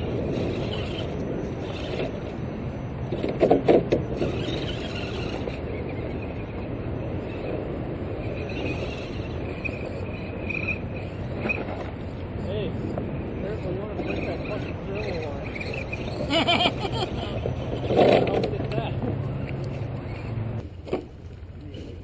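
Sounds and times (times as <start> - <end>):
steady rushing noise: 0.0 - 20.8.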